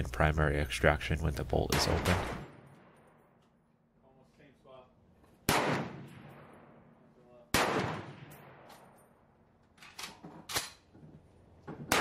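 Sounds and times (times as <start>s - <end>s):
rifle shots echoing: 1.7s - 3.3s, 5.4s - 9.0s
metallic clacks of rifle bolt: 8.3s - 11.0s.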